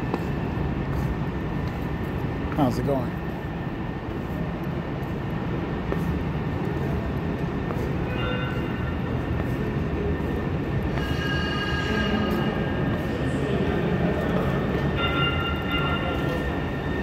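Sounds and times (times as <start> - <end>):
train rumble: 0.0 - 17.0
high-pitched metal squeal: 11.0 - 12.6.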